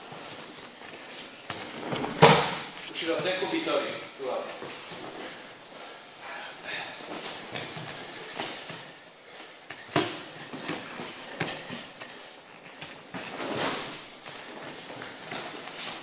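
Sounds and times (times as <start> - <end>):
bodies slapping onto mat: 1.5 - 2.9
bare feet shuffling and stamping: 7.1 - 16.0.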